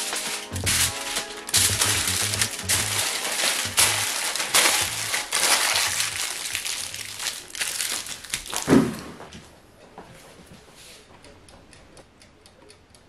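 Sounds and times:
aluminium foil crinkling: 0:00.0 - 0:09.0.

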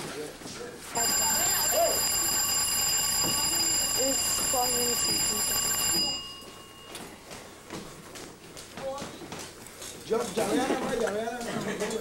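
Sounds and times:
electric timer bell ringing: 0:01.0 - 0:07.6.

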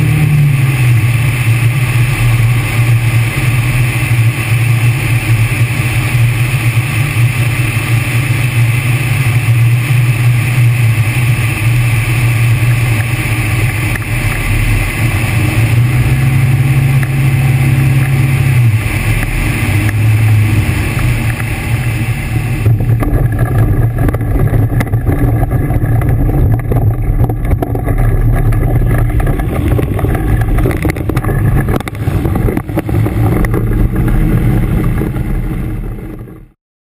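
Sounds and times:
light aircraft engine humming: 0:00.0 - 0:36.6
rushing airflow hiss: 0:00.1 - 0:26.0.

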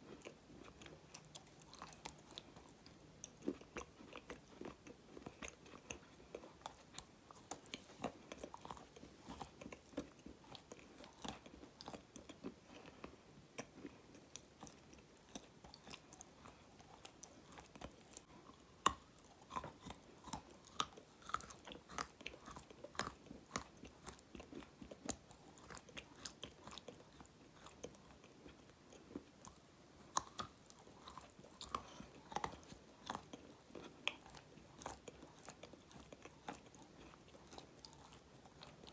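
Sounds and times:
chewing crunchy clay: 0:00.0 - 0:38.9.

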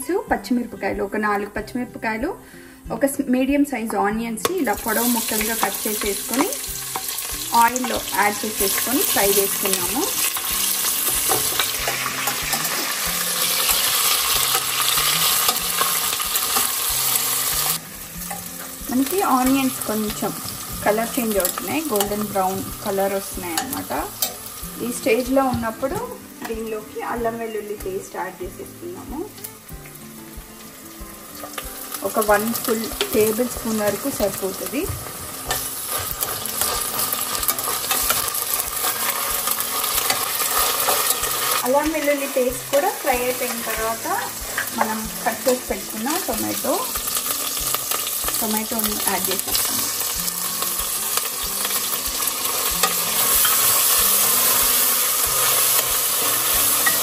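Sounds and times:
onions sizzling in hot oil: 0:00.1 - 0:57.0.

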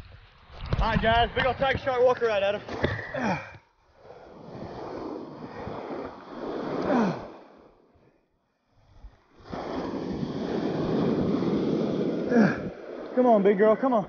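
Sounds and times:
surf washing and water churning: 0:04.2 - 0:07.8, 0:09.2 - 0:14.0.

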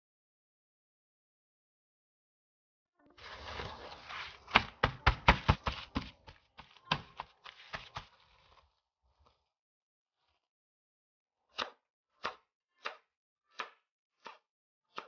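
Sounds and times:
paper towel rustling: 0:03.2 - 0:08.7
hands patting paper towel: 0:04.1 - 0:08.6.

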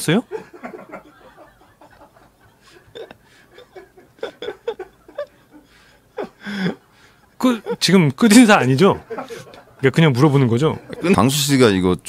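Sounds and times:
man's stifled laughter: 0:00.4 - 0:06.8.

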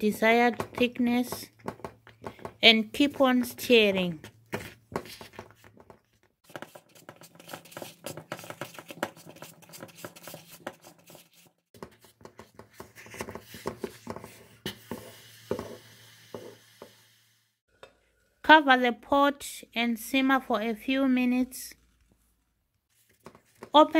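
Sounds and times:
wooden spoon scraping a pot: 0:04.6 - 0:17.0.

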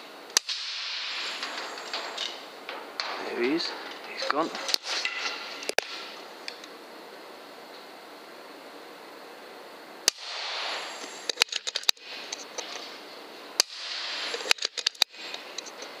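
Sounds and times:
air rifle crack: 0:00.3 - 0:06.6, 0:10.0 - 0:13.0, 0:13.6 - 0:15.9
short rush of noise: 0:00.8 - 0:02.4, 0:10.2 - 0:12.5, 0:13.8 - 0:15.3
quick run of clicks: 0:10.8 - 0:12.8, 0:14.1 - 0:15.9.

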